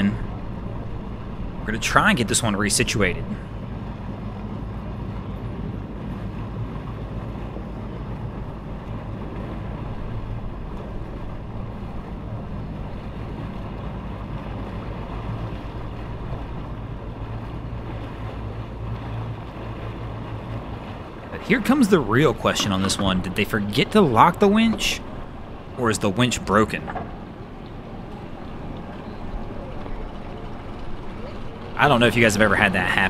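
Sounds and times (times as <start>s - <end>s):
engine idling: 0.0s - 33.0s.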